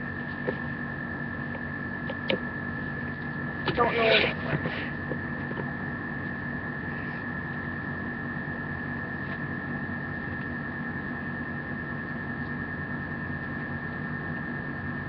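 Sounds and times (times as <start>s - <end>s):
thin high whine: 0.0s - 15.0s
microphone hiss and hum: 1.3s - 7.1s.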